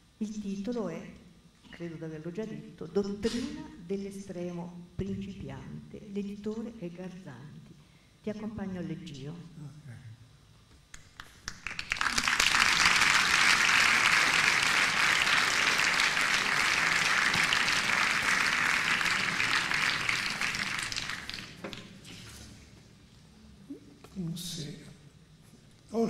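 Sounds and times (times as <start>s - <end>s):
audience applauding: 11.0s - 22.1s.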